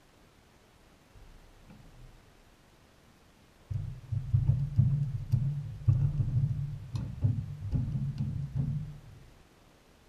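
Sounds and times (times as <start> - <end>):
heavy thumps on wooden dock: 3.7 - 9.4.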